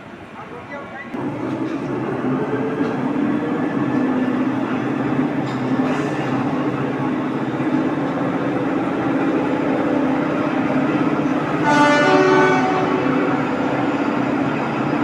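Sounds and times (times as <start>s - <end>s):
overhead crane humming: 0.0s - 15.0s
horn-like tone: 11.6s - 13.3s.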